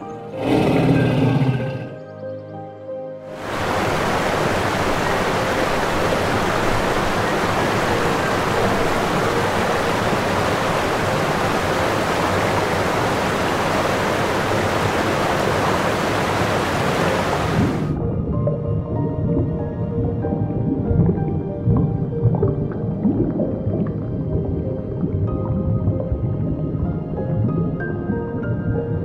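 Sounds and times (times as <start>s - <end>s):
music: 0.0s - 13.4s, 16.8s - 29.0s
steady rushing noise: 3.4s - 18.0s.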